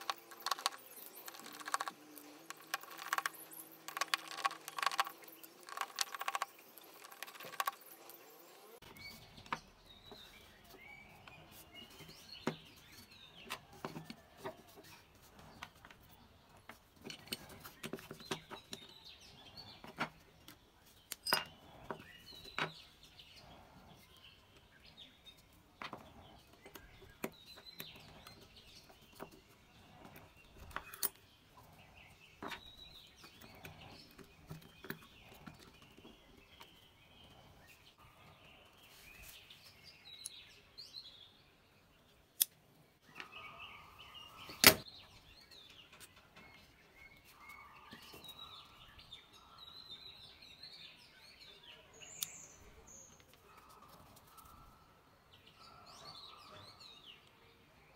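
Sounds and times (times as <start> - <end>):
plastic parts clicking and clattering: 0.0 - 8.0.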